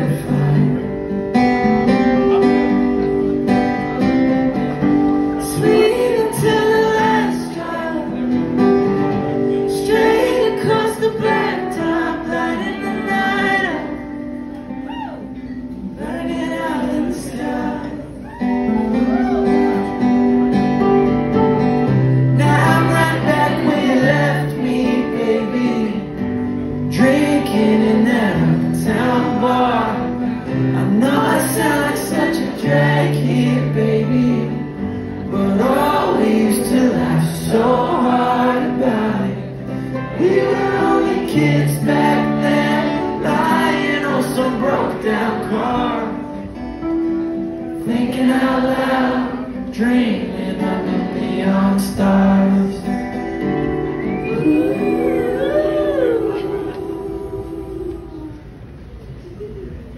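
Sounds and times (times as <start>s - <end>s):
live band with guitar: 0.0s - 59.9s
female and male voices singing: 5.4s - 8.3s, 9.6s - 14.1s, 16.0s - 18.4s, 22.4s - 26.2s, 26.9s - 46.4s, 47.8s - 52.9s, 54.2s - 58.6s.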